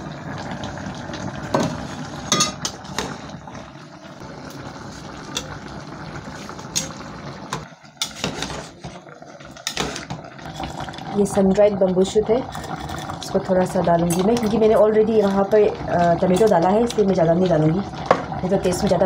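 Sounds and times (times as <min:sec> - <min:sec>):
water boiling in a pot: 0:00.0 - 0:19.0
metal ladle clinking against pot: 0:02.3 - 0:02.8.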